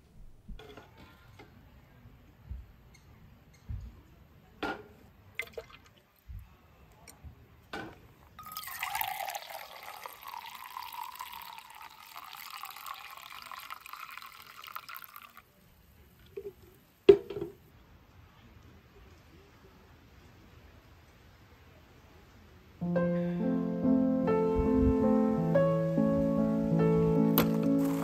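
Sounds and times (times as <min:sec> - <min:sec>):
coffee pouring into a mug: 0:08.4 - 0:15.5, 0:27.4 - 0:28.0.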